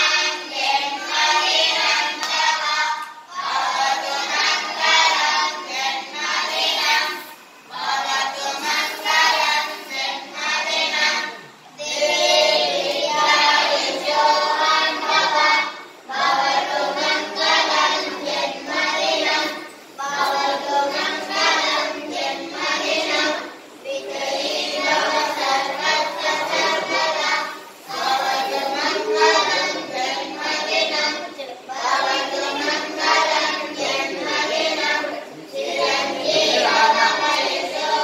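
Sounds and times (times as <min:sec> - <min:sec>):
chorus of children singing: 0:00.0 - 0:38.0.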